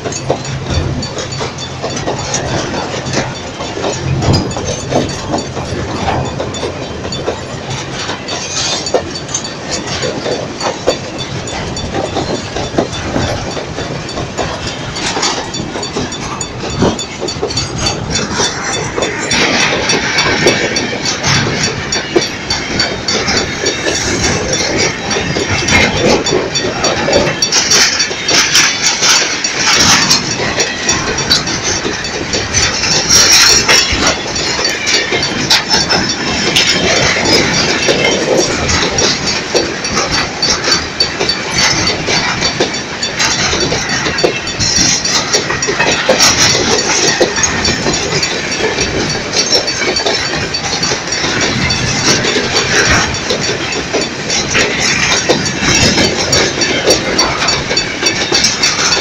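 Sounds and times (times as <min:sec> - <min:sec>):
freight train wheels clattering: 0:00.0 - 0:59.0.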